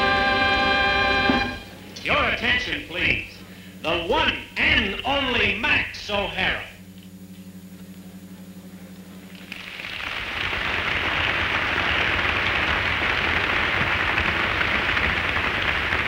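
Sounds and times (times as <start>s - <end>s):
audience applauding: 9.3s - 16.0s.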